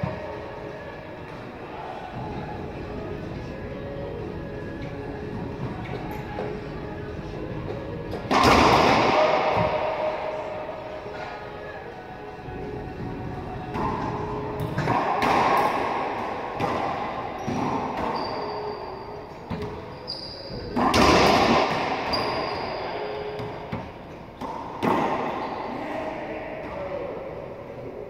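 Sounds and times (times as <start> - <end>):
booming echo: 8.3 - 10.8
sneaker squeaks: 17.4 - 23.6.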